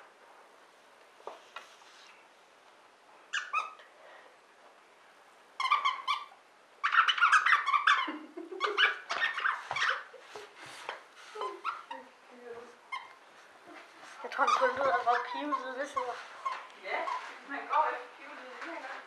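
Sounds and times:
dog toy squeaking: 3.3s - 3.8s, 5.6s - 10.1s, 11.4s - 12.1s, 12.9s - 13.2s, 14.3s - 17.9s.

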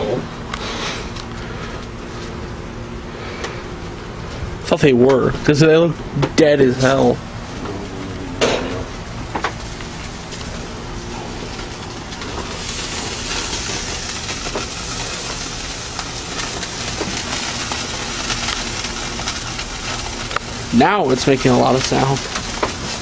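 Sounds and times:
meat sizzling on a grill: 6.6s - 23.0s.

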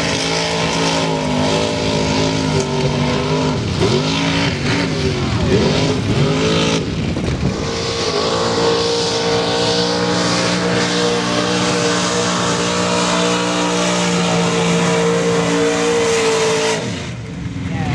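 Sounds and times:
truck engine revving: 0.0s - 17.9s.

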